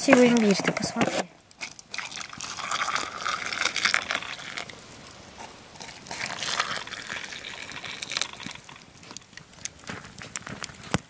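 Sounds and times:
water pouring into a mug: 1.8 - 5.2, 5.9 - 8.9.

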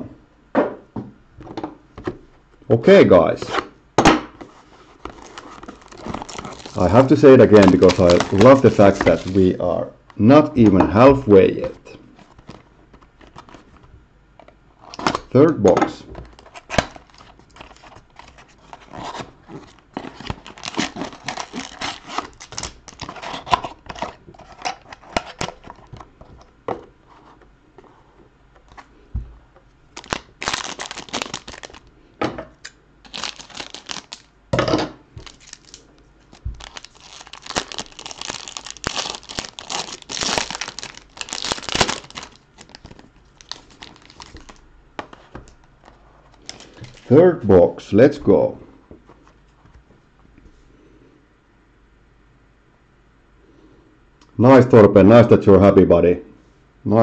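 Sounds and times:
foil wrapper crinkling and tearing: 5.0 - 9.6, 14.8 - 26.0, 29.9 - 31.9, 33.0 - 34.3, 35.2 - 44.6, 46.4 - 47.1.

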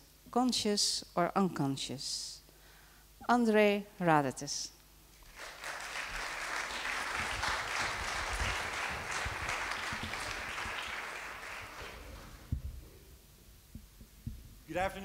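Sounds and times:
audience applauding: 5.2 - 12.6.

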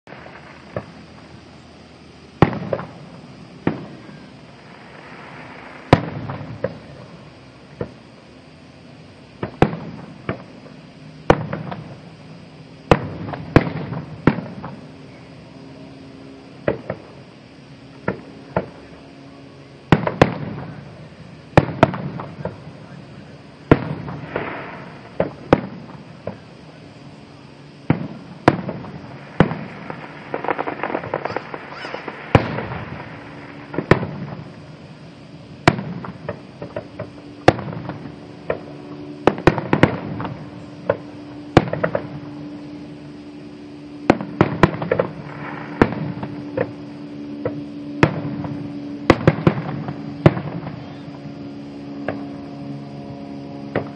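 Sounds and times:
firework crackling: 0.0 - 19.0, 19.8 - 52.6
firework shells bursting: 27.8 - 34.8.

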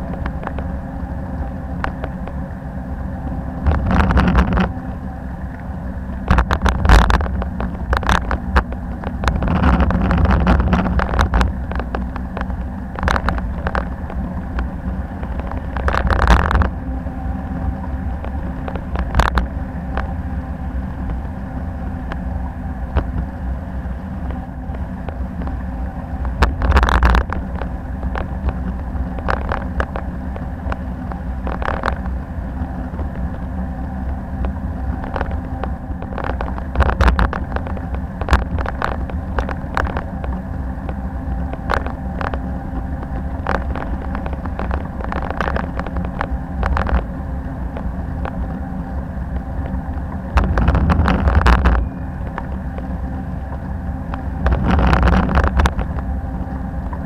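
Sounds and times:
road rumble: 0.0 - 57.0
bicycle clicks and rattles: 3.6 - 4.7, 6.3 - 16.7, 34.4 - 47.0, 54.4 - 56.0
wind noise: 6.2 - 33.4, 34.0 - 57.0.

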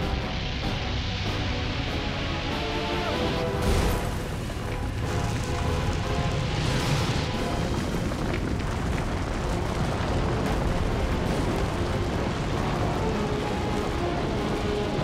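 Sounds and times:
rock and debris crashing: 3.6 - 15.0.

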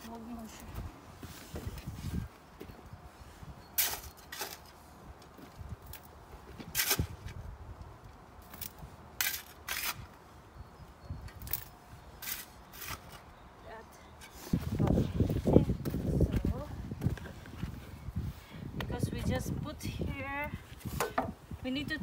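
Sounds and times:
spade scraping into soil: 9.2 - 10.1, 12.2 - 13.2.

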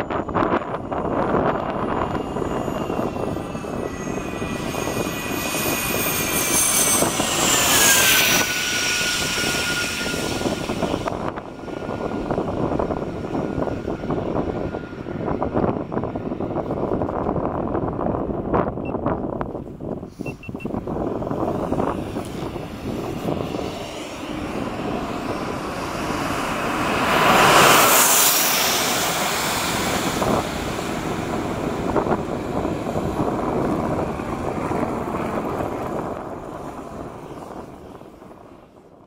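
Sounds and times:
jet engines running: 0.0 - 18.4, 20.7 - 38.8.

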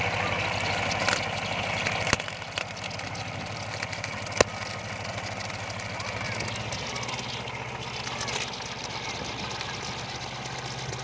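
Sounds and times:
brush cutter cutting grass: 0.0 - 11.0
tractor engine running: 0.0 - 11.0.

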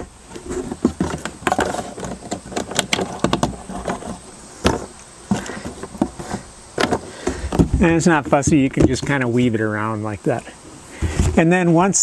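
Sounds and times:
plastic tubing clicks and scrapes: 0.3 - 9.2.

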